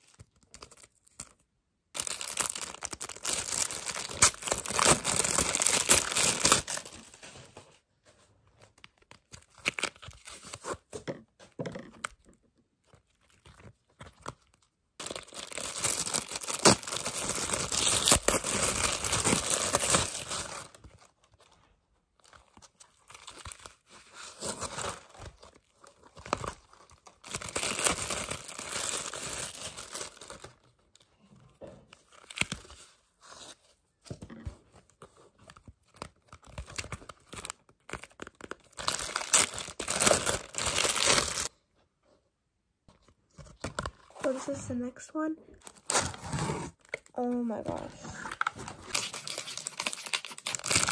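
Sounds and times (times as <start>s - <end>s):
wrapper torn and crinkled: 0.0s - 7.3s, 8.9s - 10.7s, 13.0s - 21.6s, 22.2s - 30.8s, 32.1s - 32.8s, 35.8s - 41.5s, 48.2s - 50.9s.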